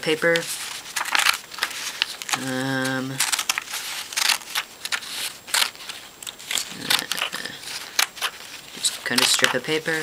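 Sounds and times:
scissors snipping paper: 0:01.0 - 0:08.5
person humming: 0:02.3 - 0:03.2, 0:06.6 - 0:07.7.

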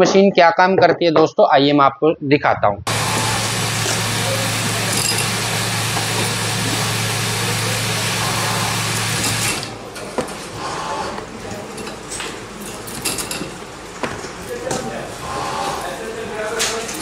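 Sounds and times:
steady machine hum: 0:02.9 - 0:11.5.

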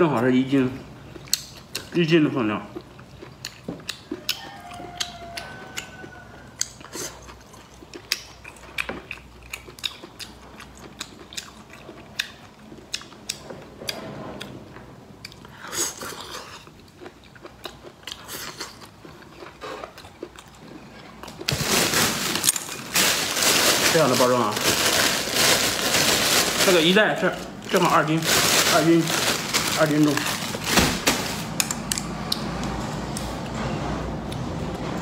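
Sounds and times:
chewing and crunching: 0:01.1 - 0:14.6, 0:15.2 - 0:32.5
plastic bag crinkling: 0:21.3 - 0:31.7.

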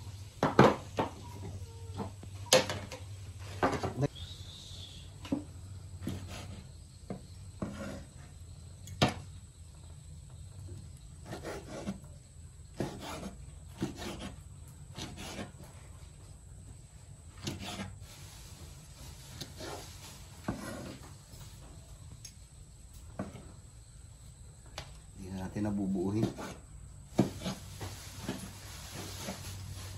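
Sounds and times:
cleaver sawing through meat: 0:11.2 - 0:12.1, 0:12.8 - 0:15.6.

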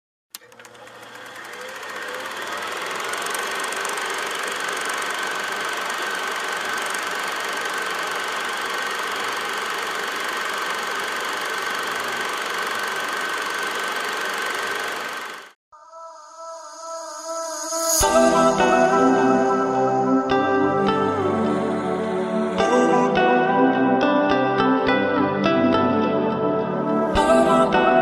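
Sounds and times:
engine-like drone: 0:00.4 - 0:15.6
thin high whine: 0:15.8 - 0:20.3.

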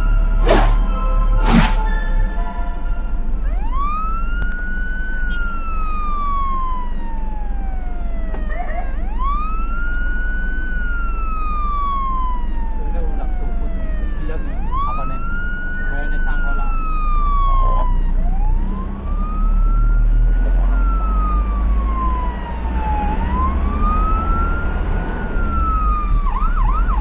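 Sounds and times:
ambulance siren wailing: 0:00.0 - 0:27.0
vehicle drone: 0:00.0 - 0:27.0.

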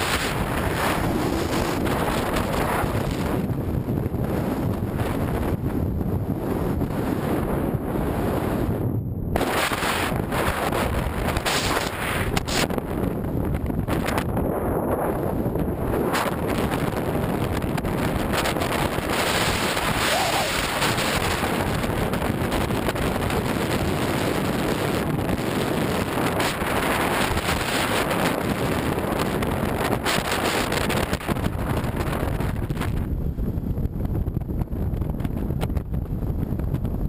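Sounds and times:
wind buffeting microphone: 0:00.0 - 0:37.0
tyre noise: 0:19.3 - 0:21.2.

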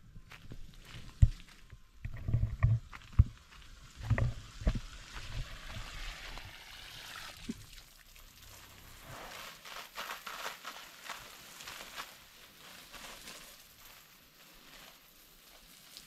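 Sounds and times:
water running from garden hose: 0:03.8 - 0:16.0.

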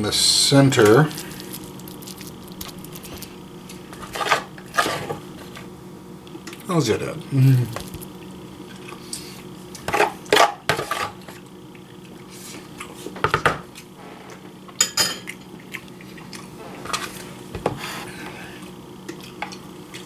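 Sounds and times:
dishes clinking on counter: 0:14.8 - 0:15.3.

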